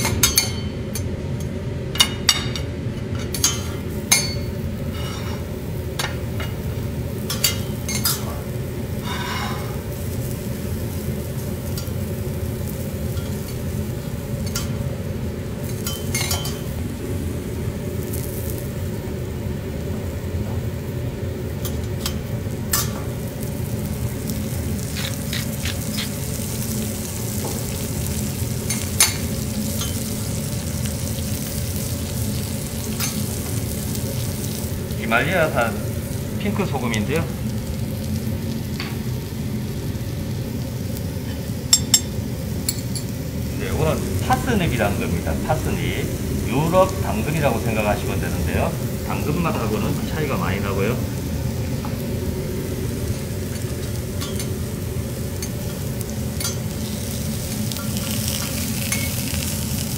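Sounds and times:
food sizzling on a griddle: 3.3s - 59.9s
metal spatula scraping steel plate: 9.0s - 9.8s.

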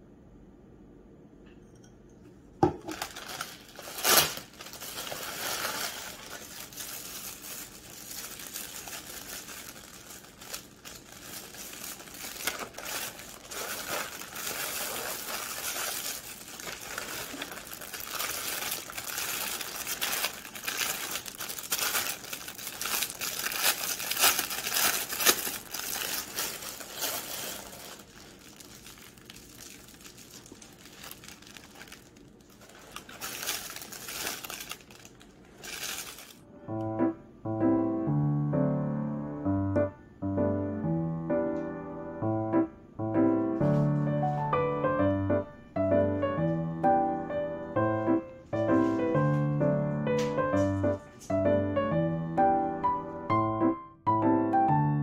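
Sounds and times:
plastic packaging crinkling: 2.6s - 36.5s, 47.8s - 51.4s.

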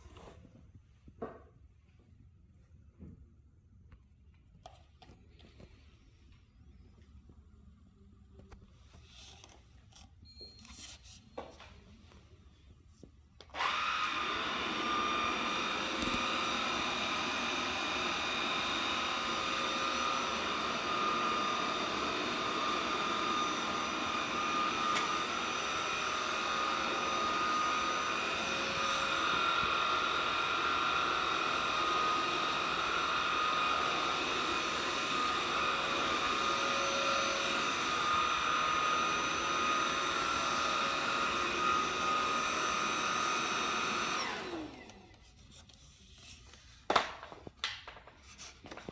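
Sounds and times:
stick vacuum cleaner whining: 13.4s - 48.9s.

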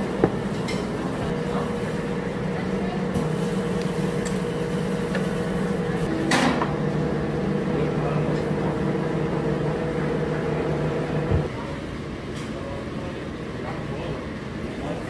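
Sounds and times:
machine humming: 1.3s - 11.5s.

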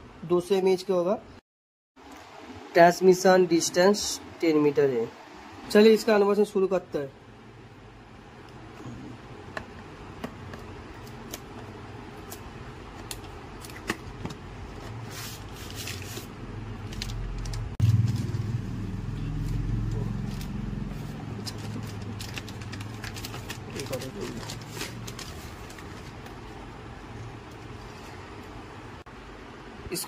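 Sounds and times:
papery rustle: 14.7s - 18.3s, 19.4s - 26.6s
steady low rumble: 16.4s - 29.8s.

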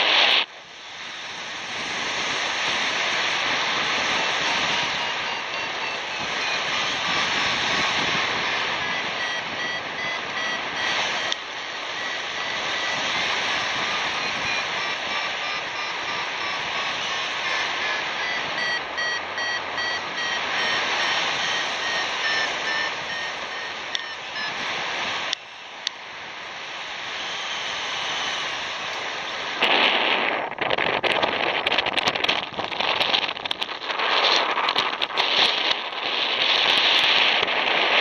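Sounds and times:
wind buffeting microphone: 0.9s - 25.4s, 27.2s - 38.0s
variometer beeping: 4.5s - 26.0s.

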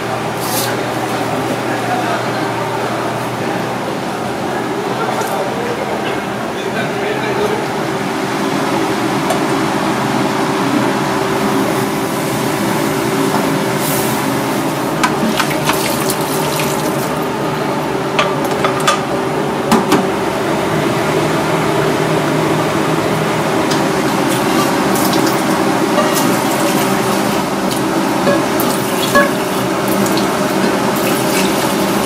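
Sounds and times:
tap water running into sink: 15.0s - 17.2s, 23.7s - 32.0s
kitchenware clattering: 24.3s - 27.4s, 28.2s - 31.9s.

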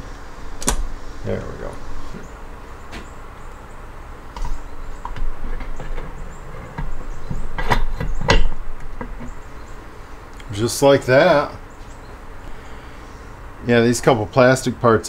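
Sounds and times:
metal parts clicking and clunking: 4.4s - 9.4s.

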